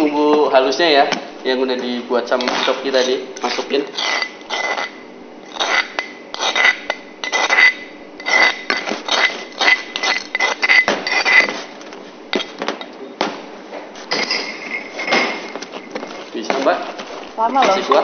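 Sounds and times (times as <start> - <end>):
metal spoon scraping steel bowl: 2.4 - 11.7.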